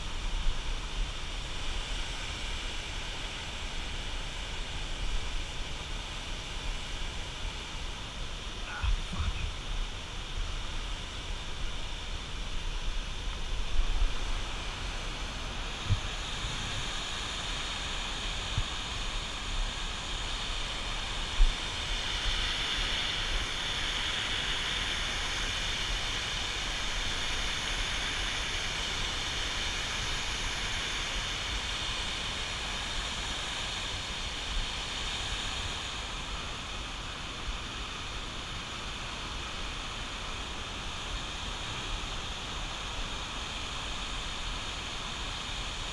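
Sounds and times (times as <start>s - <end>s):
wind rumble on microphone: 8.7s - 22.1s.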